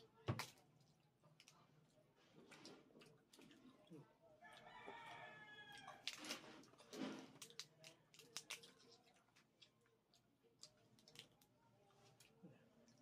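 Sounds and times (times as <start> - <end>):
eating noises: 0.6 - 4.7, 5.7 - 13.0
crab shells cracking: 7.4 - 9.8.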